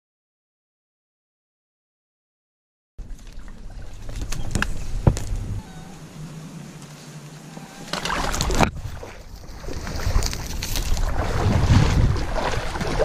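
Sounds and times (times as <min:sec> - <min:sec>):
wind on microphone: 0:03.0 - 0:06.3, 0:07.7 - 0:13.0.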